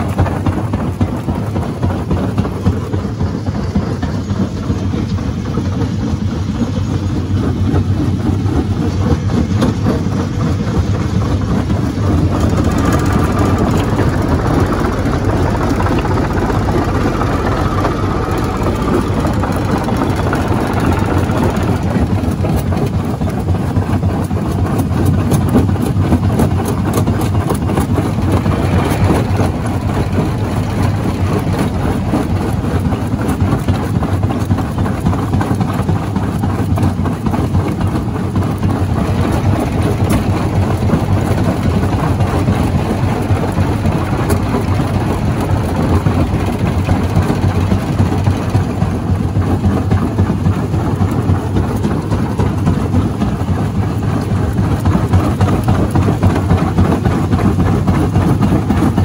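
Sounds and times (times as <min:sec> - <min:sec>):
stone crusher droning: 0:25.1 - 0:36.8.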